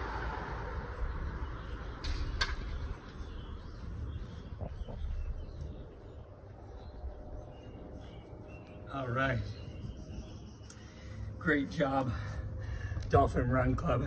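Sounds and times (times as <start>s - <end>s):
wind rumble on microphone: 0.0s - 10.7s
faint bird chirps: 1.3s - 11.3s.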